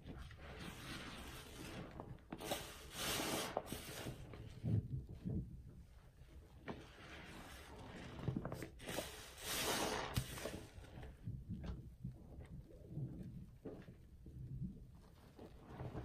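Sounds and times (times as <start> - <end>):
sponge squelching in soapy water: 0.0 - 5.4, 6.2 - 11.7, 14.9 - 16.0.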